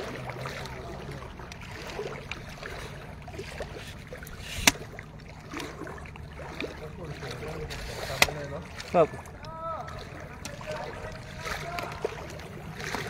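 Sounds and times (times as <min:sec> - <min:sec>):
steady low hum: 0:00.0 - 0:13.0
water sloshing and splashing: 0:00.0 - 0:13.0.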